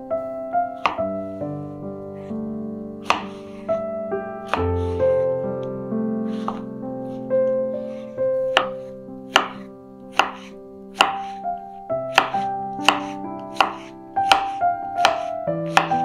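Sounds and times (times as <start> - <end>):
soft piano music: 0.0 - 16.0
knife chopping on cutting board: 0.8 - 1.1, 3.0 - 3.7, 6.4 - 6.7, 8.5 - 11.4, 12.1 - 16.0.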